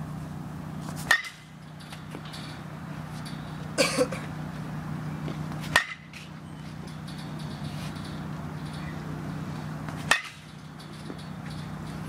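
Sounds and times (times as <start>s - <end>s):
steady low hum: 0.0s - 12.0s
bat hitting ball: 1.0s - 2.8s, 5.6s - 6.2s, 9.9s - 11.7s.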